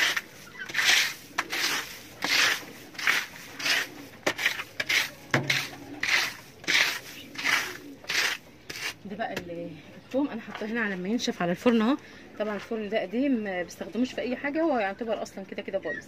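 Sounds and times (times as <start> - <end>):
broom sweeping dirt floor: 0.0 - 9.0.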